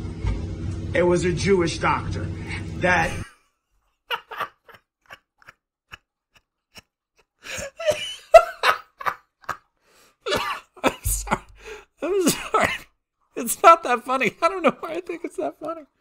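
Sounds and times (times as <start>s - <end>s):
person laughing hard: 4.0s - 12.7s.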